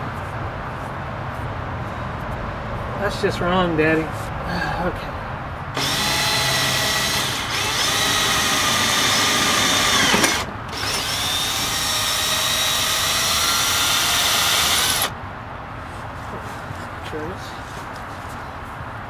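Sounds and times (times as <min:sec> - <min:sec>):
cordless drill running: 0:05.8 - 0:15.1.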